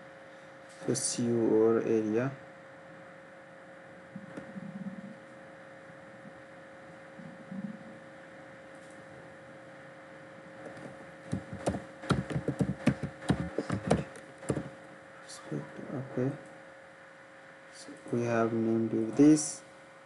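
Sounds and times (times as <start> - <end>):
steady electrical hum: 0.0 - 20.0
computer keyboard typing: 11.3 - 14.7.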